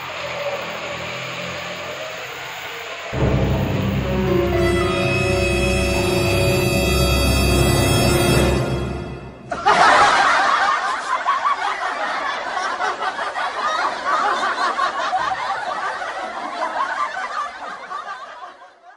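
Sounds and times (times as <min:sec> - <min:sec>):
voices laughing and snickering: 0:09.5 - 0:18.9.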